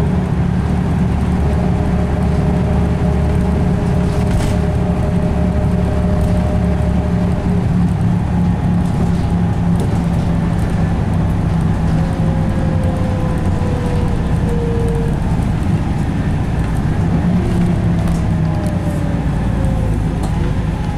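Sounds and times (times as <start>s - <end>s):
bus diesel engine running: 0.0s - 20.9s
gearbox whine: 0.0s - 20.9s
road noise: 0.0s - 20.9s.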